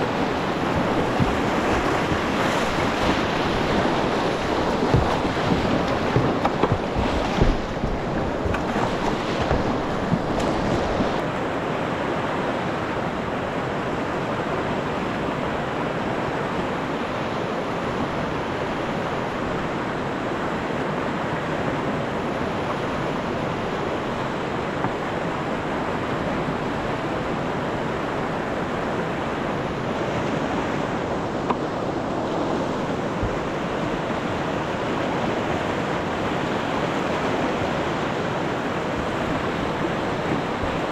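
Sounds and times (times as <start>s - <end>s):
kayak paddle splashes: 0.0s - 11.5s, 21.2s - 40.9s
water rushing over rocks: 0.0s - 40.9s.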